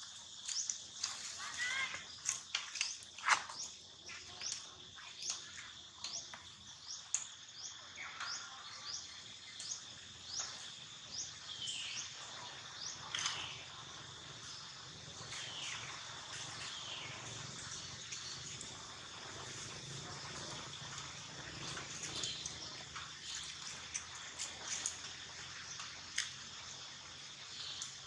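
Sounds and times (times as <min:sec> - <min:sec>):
birds chirping: 0:00.4 - 0:25.9
longer falling bird calls: 0:00.5 - 0:06.3.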